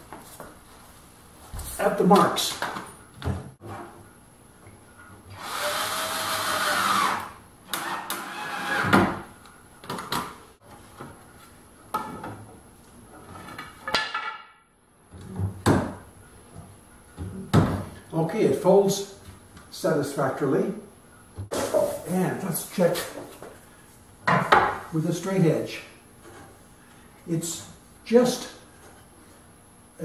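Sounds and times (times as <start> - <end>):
cordless drill driving screws: 5.4 - 8.9.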